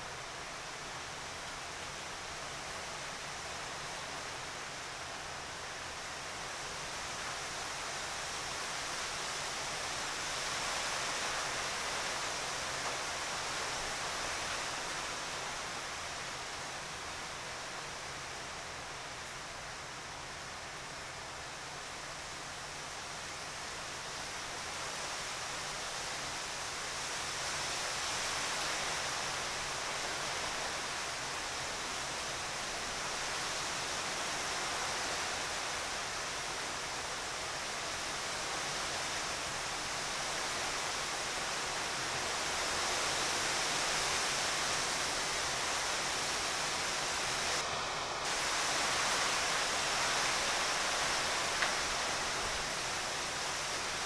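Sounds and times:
outdoor background hiss: 0.0s - 54.0s.

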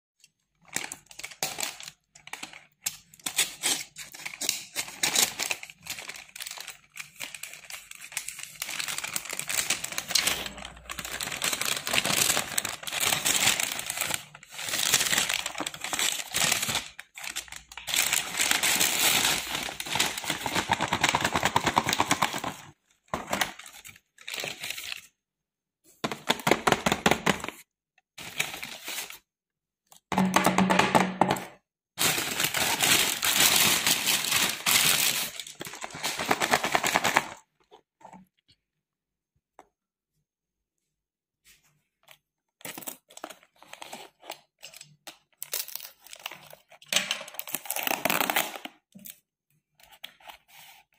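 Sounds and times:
paper bag crinkling: 5.3s - 22.6s, 32.0s - 37.4s.

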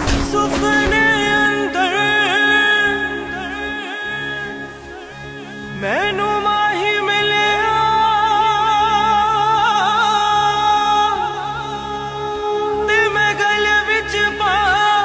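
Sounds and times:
person singing with ornamental turns: 0.0s - 3.5s
steady low drone: 0.0s - 6.1s.

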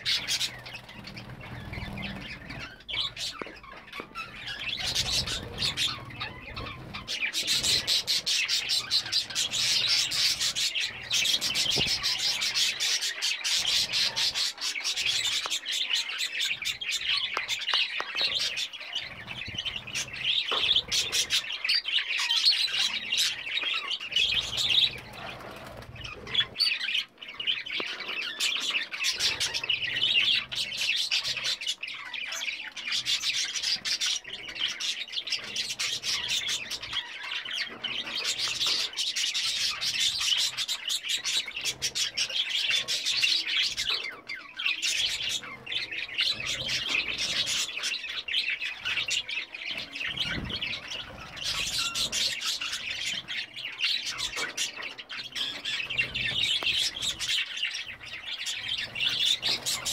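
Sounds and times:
budgerigars chirping and warbling: 0.0s - 59.9s.

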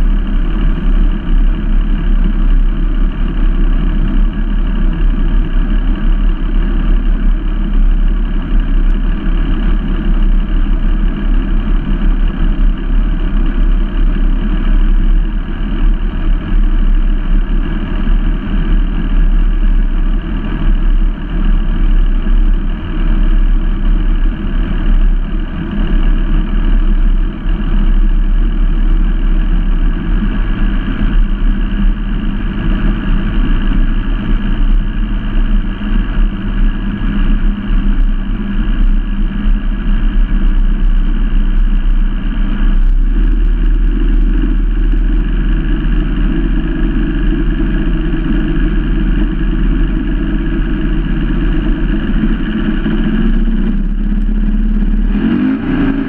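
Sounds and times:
outboard engine running: 0.0s - 56.0s.

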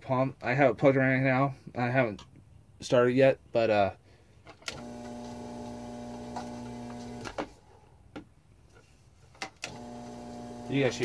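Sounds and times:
pump motor humming: 4.7s - 7.4s, 9.6s - 11.0s.

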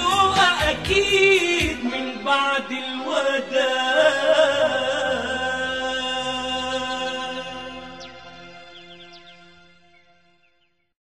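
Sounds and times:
person singing pop song: 0.0s - 7.9s.

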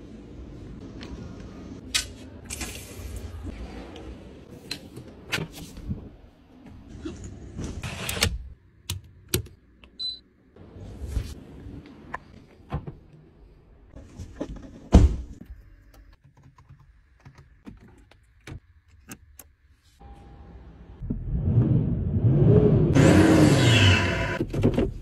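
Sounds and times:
car engine revving: 21.2s - 24.4s.

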